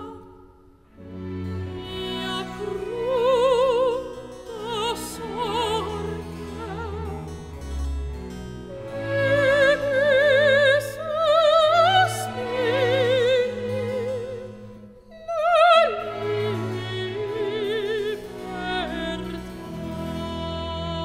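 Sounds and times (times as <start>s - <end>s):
operatic soprano singing: 0.0s - 7.5s, 8.7s - 21.0s
soft sustained accompaniment: 0.0s - 21.0s.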